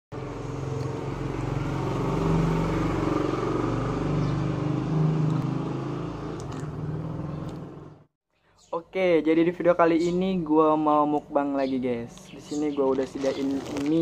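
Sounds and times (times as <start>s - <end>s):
vehicle engine running: 0.1s - 8.1s.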